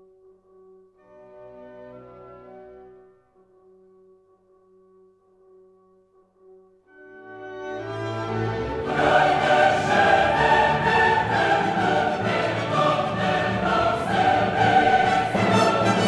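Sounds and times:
orchestra playing: 7.0 - 16.0
choir singing: 8.0 - 16.0.

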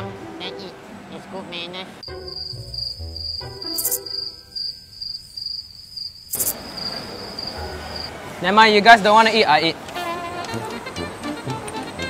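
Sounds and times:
cricket chirping: 2.0 - 8.1.

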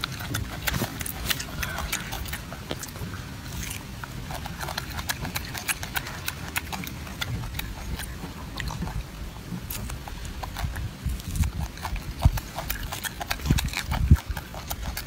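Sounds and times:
monkey chewing and smacking: 0.0 - 15.0.

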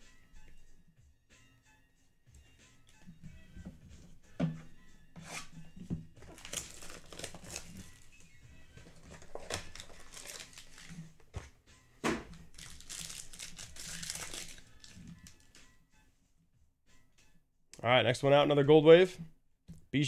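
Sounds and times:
foil pack crinkling: 6.2 - 8.2, 8.8 - 11.0, 12.4 - 15.6
foil pack tearing: 6.3 - 8.1, 8.8 - 11.0, 12.5 - 15.6.

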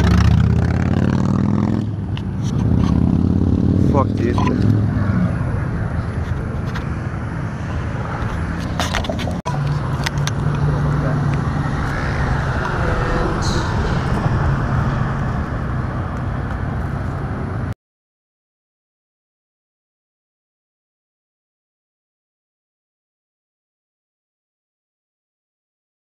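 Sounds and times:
roadside traffic noise: 0.0 - 17.8
low hum: 1.9 - 17.7.

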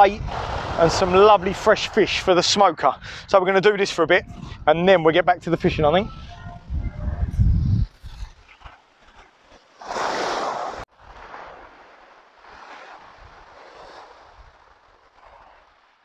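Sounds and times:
waves washing up shingle beach: 0.0 - 2.6, 9.5 - 16.0
rush of surf and wind: 0.0 - 16.0.

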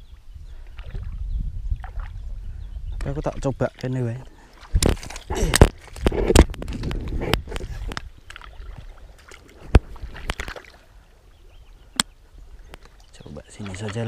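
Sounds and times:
sloshing steps in mud: 4.5 - 7.0, 7.6 - 10.8.

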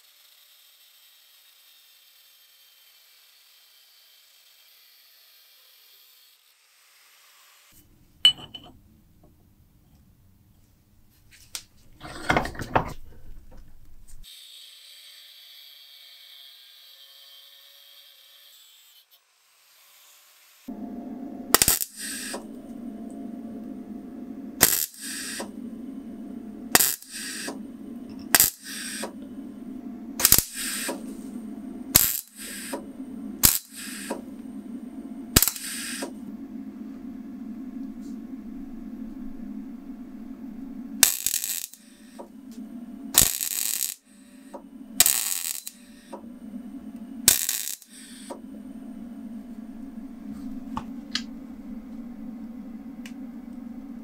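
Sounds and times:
gas torch burning: 20.7 - 54.0.

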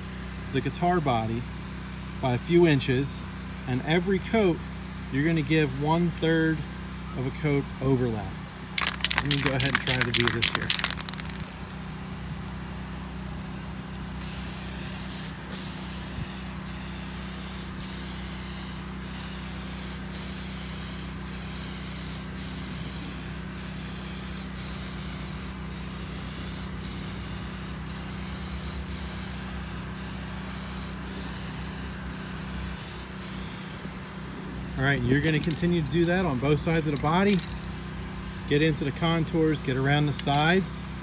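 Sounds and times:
spray can hissing: 8.8 - 11.9, 14.1 - 33.8, 35.2 - 35.7, 36.7 - 37.7.

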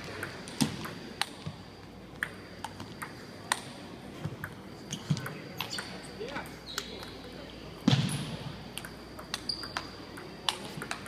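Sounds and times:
table tennis ball clicks: 8.8 - 11.0.

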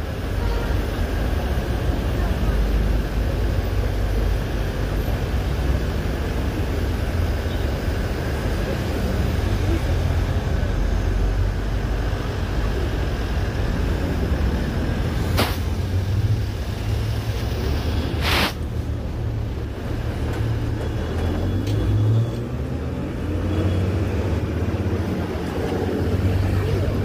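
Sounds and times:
bus engine and road noise: 0.0 - 27.0.

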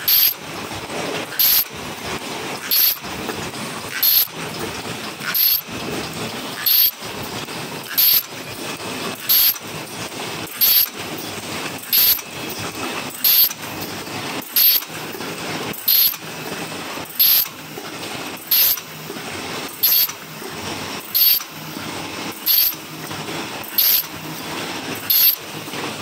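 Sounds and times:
sharp high-pitched burst: 0.0 - 0.4, 1.4 - 1.7, 2.7 - 3.0, 4.0 - 4.3, 5.3 - 5.6, 6.6 - 7.0, 8.0 - 8.3, 9.3 - 9.6, 10.6 - 10.9, 11.9 - 12.2, 13.2 - 13.6, 14.6 - 14.8, 15.9 - 16.2, 17.2 - 17.4, 18.5 - 18.8, 19.8 - 20.1, 21.2 - 21.4, 22.5 - 22.8, 23.8 - 24.1, 25.1 - 25.4.

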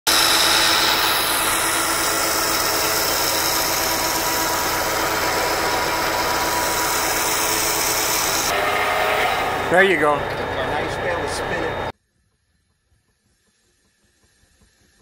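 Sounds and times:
engine running steadily: 0.1 - 8.6, 9.3 - 11.9.

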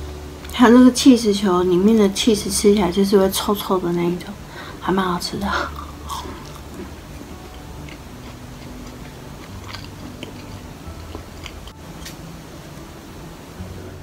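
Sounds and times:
low steady hum: 0.0 - 14.0
person chewing food: 5.6 - 12.2.

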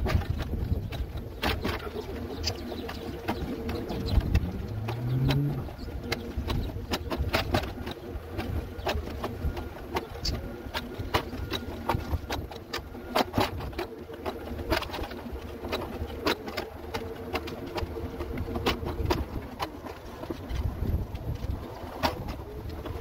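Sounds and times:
mobility scooter motor hum: 0.0 - 23.0
scooter clicks and knocks: 0.0 - 23.0.

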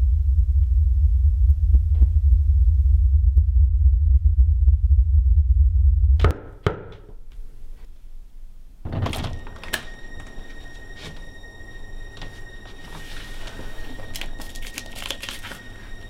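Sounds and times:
loud low rumble: 0.0 - 6.3
faint high steady tones: 9.1 - 14.6, 15.3 - 16.0.

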